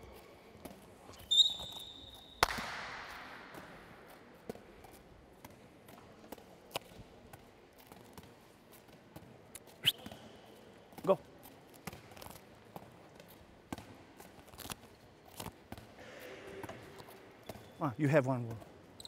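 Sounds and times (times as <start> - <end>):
handball smacking in hall: 0.6 - 11.1, 11.8 - 14.4
short high squeak: 1.3 - 2.4.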